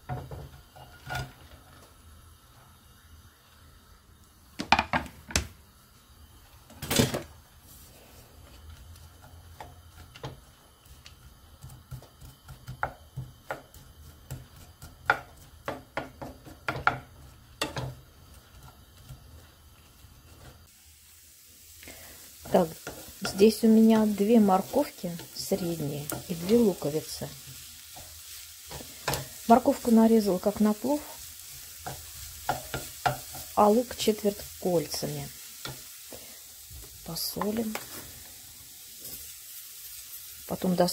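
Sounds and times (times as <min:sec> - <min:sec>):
wooden spatula scraping frying pan: 0:00.1 - 0:01.6, 0:07.7 - 0:20.7, 0:22.4 - 0:34.4.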